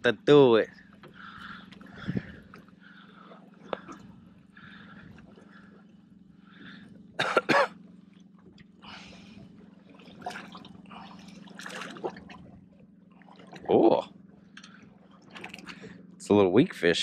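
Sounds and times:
low hum: 0.0 - 17.0
person coughing: 7.2 - 7.8.

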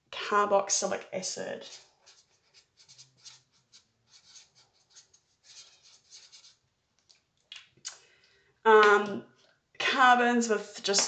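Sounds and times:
marker pen scratching on paper: 1.6 - 6.6.

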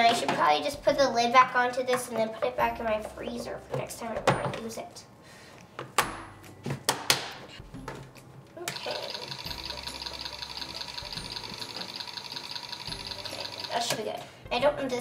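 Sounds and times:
stand mixer motor whirring: 8.7 - 13.7.

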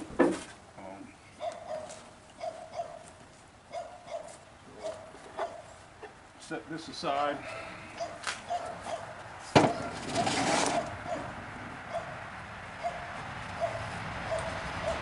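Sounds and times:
wood scraping and rattling: 9.4 - 11.4.

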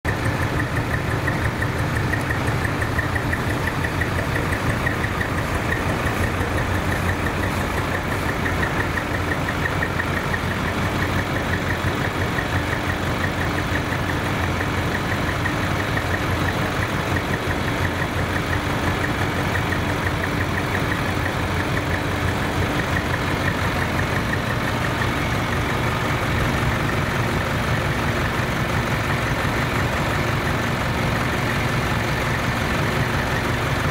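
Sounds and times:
truck engine idling: 0.0 - 33.9.

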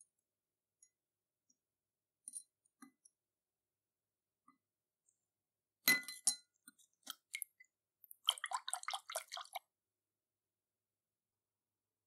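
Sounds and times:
tweezers clinking on glass dish: 5.8 - 6.5.

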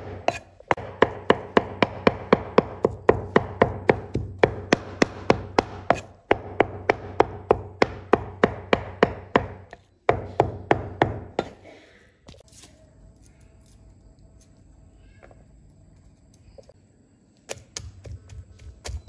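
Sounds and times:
cleaver chopping on wooden board: 0.0 - 11.3.

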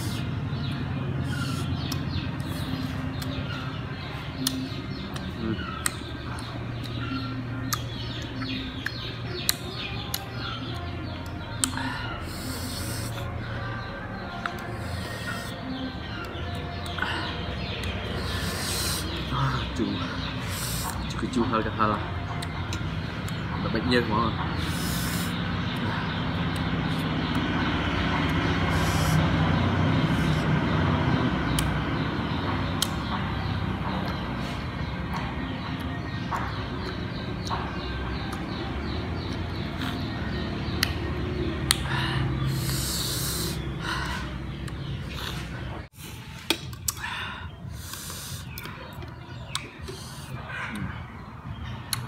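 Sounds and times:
engine low rumble: 0.0 - 52.0
sharp sucking intakes of air: 24.6 - 25.4, 28.7 - 29.3, 42.4 - 43.7.

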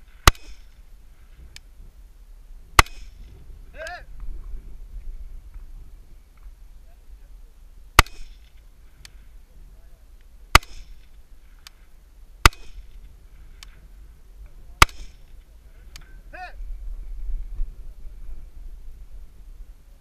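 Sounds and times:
rifle shots with echo: 0.2 - 0.8, 2.8 - 3.3, 8.0 - 8.6, 10.5 - 11.2, 12.4 - 13.0, 14.8 - 15.3.

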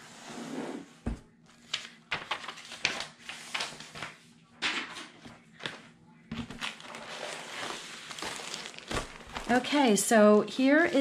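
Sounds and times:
paper and cellophane rustling: 1.6 - 4.2, 6.4 - 11.0.

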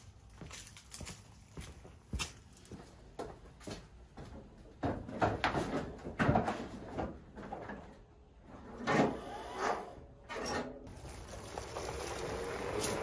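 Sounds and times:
objects knocking and clattering: 4.7 - 8.1.

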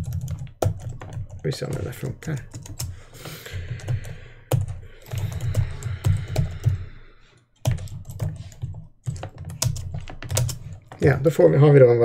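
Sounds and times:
typing on computer keyboard: 0.0 - 7.0, 7.6 - 11.1.

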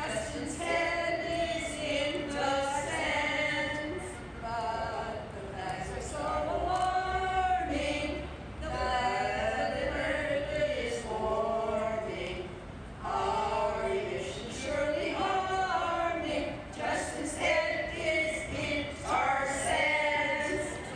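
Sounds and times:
women singing unaccompanied: 0.0 - 20.9.

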